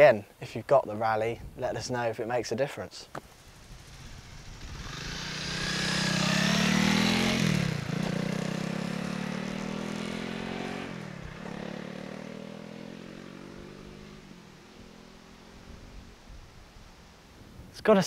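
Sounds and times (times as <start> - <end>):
motorcycle engine running: 3.2 - 14.9.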